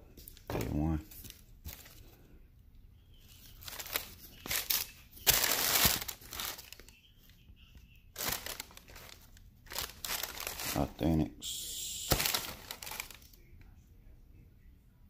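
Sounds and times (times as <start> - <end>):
tissue paper rustling and crinkling: 3.3 - 6.9, 8.1 - 11.0, 12.1 - 13.3.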